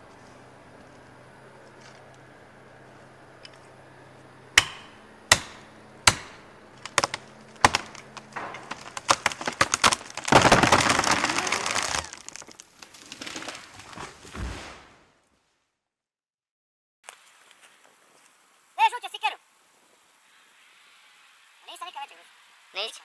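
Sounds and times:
blows driving a wedge: 4.6 - 12.3
wood cracking and splintering: 4.6 - 14.7
tree trunk crashing down: 4.6 - 15.1.

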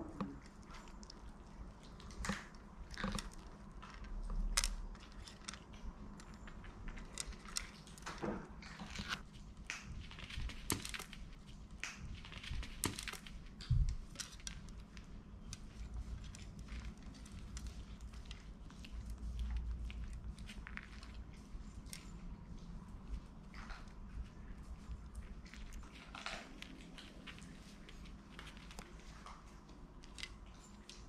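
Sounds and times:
puppies crunching dry kibble: 0.0 - 31.0.

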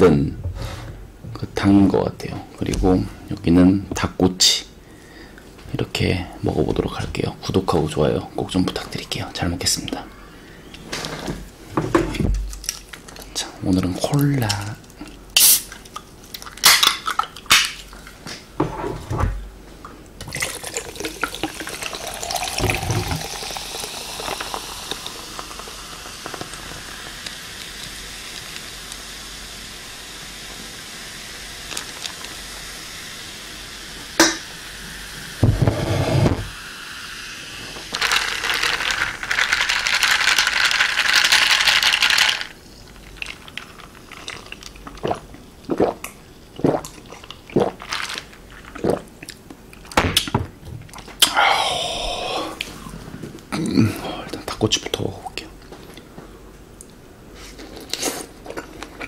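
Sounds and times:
cola fizzing over ice: 20.2 - 29.1, 37.8 - 49.1
rush of pouring liquid: 20.3 - 28.5, 37.4 - 46.0.

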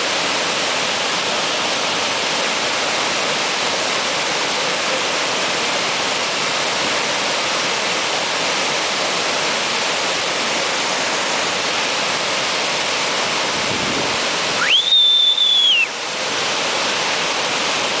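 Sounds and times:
waterfall rushing: 0.0 - 18.0
loud whistle: 14.6 - 16.0.

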